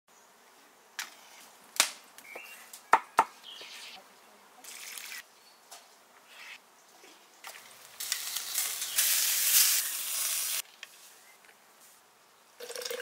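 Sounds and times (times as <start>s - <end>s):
water running over leaves: 4.6s - 5.2s, 7.5s - 10.6s.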